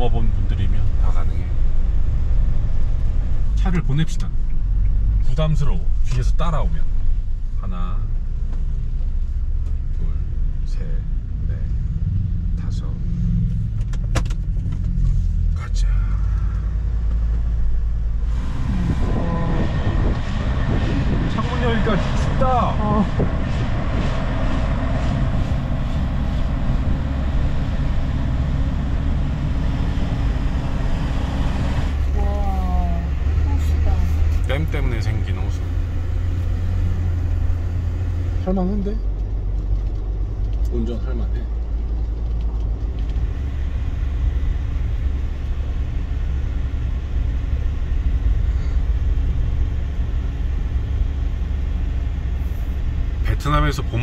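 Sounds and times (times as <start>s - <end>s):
van engine and road rumble: 0.0s - 54.0s
wind rushing through window: 16.7s - 32.4s.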